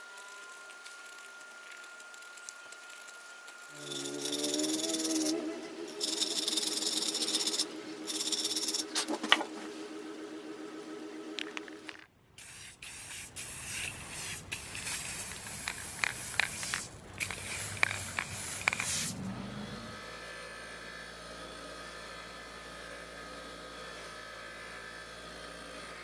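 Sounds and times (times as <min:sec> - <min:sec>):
steady wavering tone: 0:00.0 - 0:12.0
hand sanding metal: 0:03.8 - 0:09.2
spray can hissing: 0:12.4 - 0:19.2.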